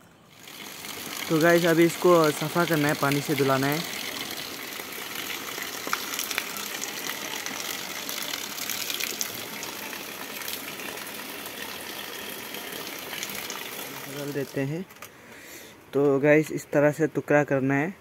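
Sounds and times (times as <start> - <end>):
water running into steel bowl: 0.3 - 14.6.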